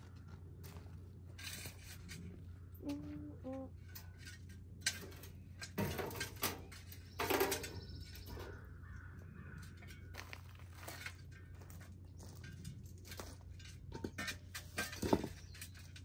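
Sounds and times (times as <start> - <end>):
bird cawing: 7.8 - 10.5
cinder blocks knocking in wheelbarrow: 13.9 - 15.5.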